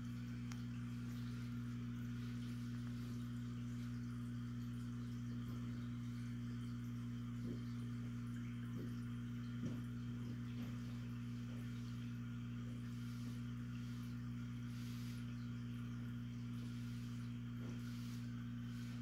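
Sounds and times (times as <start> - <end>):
aquarium pump humming: 0.0 - 19.0.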